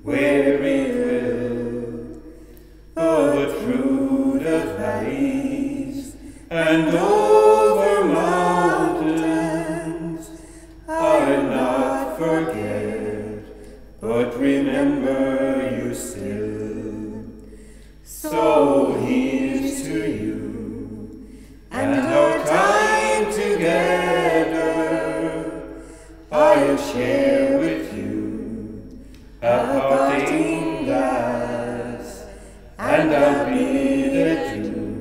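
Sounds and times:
unaccompanied voices singing: 0.0s - 35.0s.

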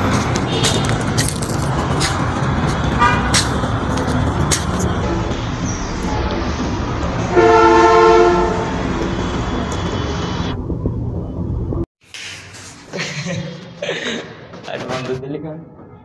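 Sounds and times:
outdoor rumble: 0.0s - 11.9s
loud horn blast: 0.4s - 1.1s, 2.9s - 3.5s, 5.0s - 10.6s.

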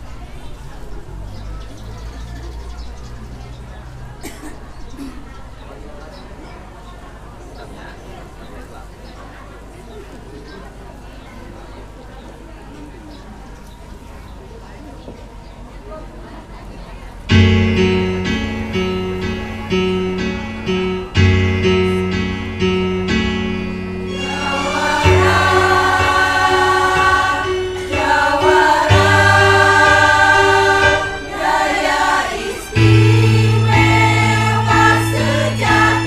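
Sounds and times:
instrumental music with beat: 17.4s - 30.2s
women's choir singing: 24.0s - 36.0s.

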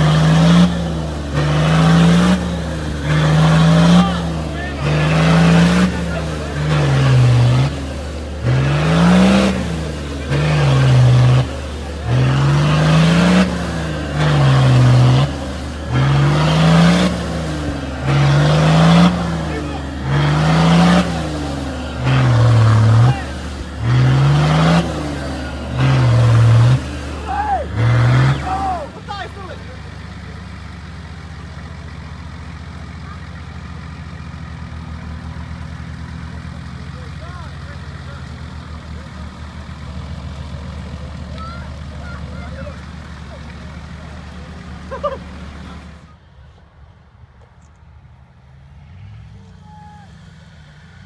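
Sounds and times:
engine revving: 0.0s - 46.3s, 47.6s - 51.0s.

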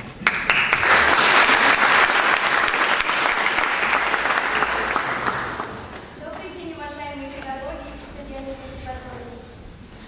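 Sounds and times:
audience applauding: 0.0s - 6.1s.

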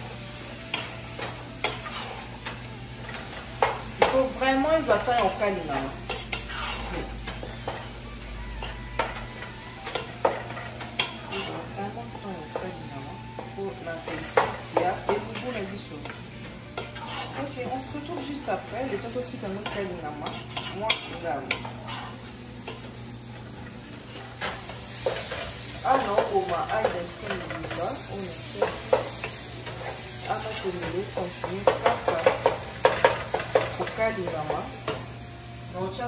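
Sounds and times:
sizzle from hot pot: 0.0s - 36.0s
wooden spoon scraping a pot: 6.1s - 7.6s, 16.8s - 17.6s, 19.6s - 22.3s.

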